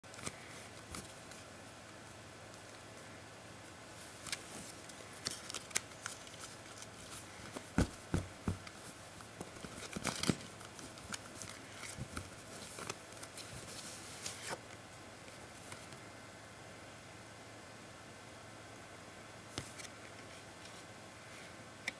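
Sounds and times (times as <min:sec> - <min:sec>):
playing cards snapping and rustling: 0:00.1 - 0:01.5, 0:04.1 - 0:14.6.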